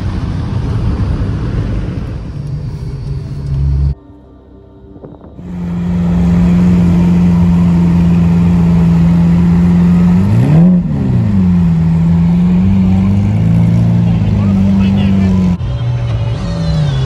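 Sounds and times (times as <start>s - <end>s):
car engine idling and revving: 0.0s - 17.0s.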